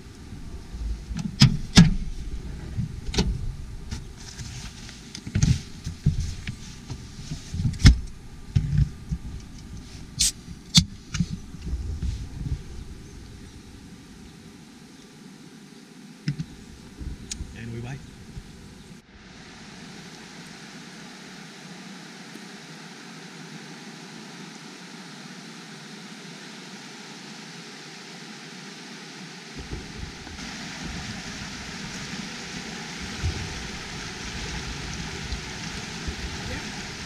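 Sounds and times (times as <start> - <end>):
river rushing over rocks: 27.1 - 37.0.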